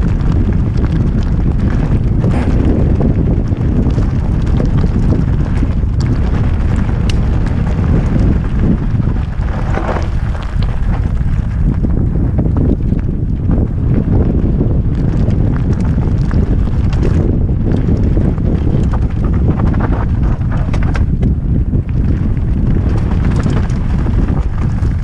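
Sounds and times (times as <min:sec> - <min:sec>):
bike rumbling on stony track: 0:00.0 - 0:25.0
wind buffeting microphone: 0:00.0 - 0:25.0
clicks and rattles: 0:18.8 - 0:21.4.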